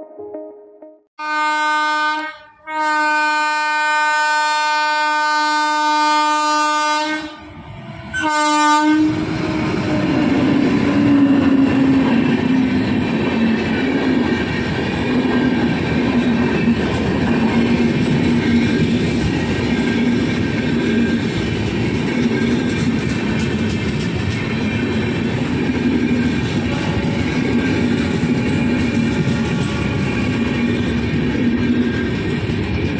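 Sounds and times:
locomotive horn blasts: 1.2 - 7.4, 8.2 - 9.2
train wheels clattering on rails: 9.1 - 32.9.

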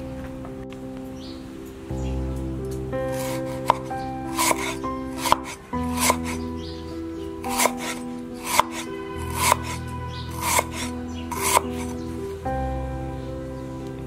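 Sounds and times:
background music: 0.0 - 14.0
cleaver cutting on wooden board: 3.2 - 6.4, 7.5 - 12.0.

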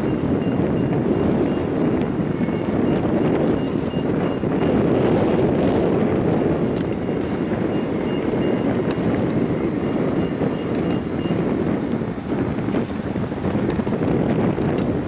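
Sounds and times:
wind on microphone: 0.0 - 15.0
faint high beeps: 2.4 - 4.4.

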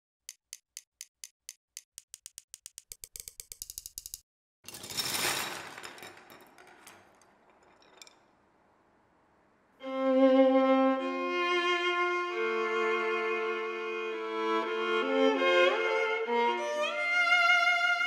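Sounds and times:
sharp clicks speeding into a rattle: 0.3 - 4.3.

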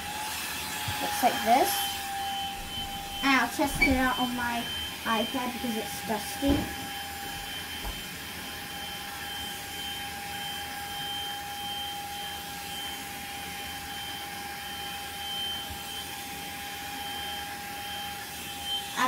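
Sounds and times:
handheld vacuum cleaner running: 0.0 - 19.0.

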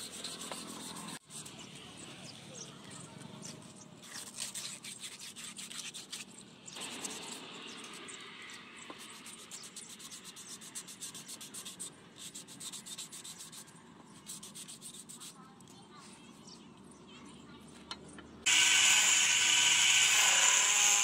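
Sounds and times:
hand sanding strokes: 0.0 - 1.7, 4.1 - 8.1, 9.0 - 15.4.

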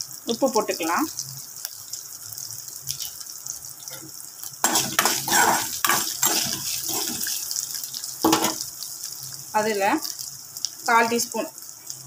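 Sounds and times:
food sizzling in oil: 0.0 - 12.0
spoon scraping a metal pan: 4.6 - 7.5, 8.3 - 8.6.

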